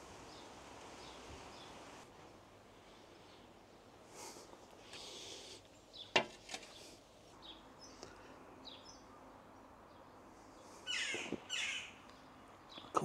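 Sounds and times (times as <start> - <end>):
rapid repeated bird song: 0.2 - 1.8, 4.9 - 13.0
birds chirping: 4.9 - 13.0.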